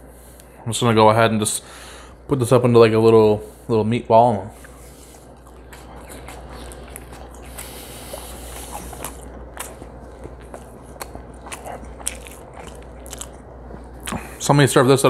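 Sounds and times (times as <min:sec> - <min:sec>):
faint low hum: 0:00.0 - 0:15.0
wet chewing clicks and smacks: 0:04.6 - 0:14.4.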